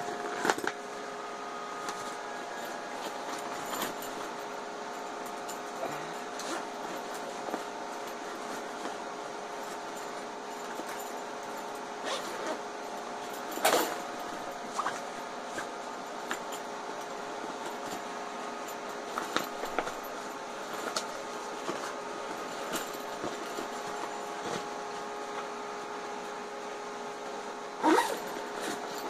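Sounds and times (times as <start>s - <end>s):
steady hum: 0.0s - 29.0s
backpack fabric rustling: 12.0s - 12.6s, 13.2s - 15.8s, 17.7s - 24.8s, 27.8s - 29.0s
clicks of straps and buckles: 27.8s - 29.0s.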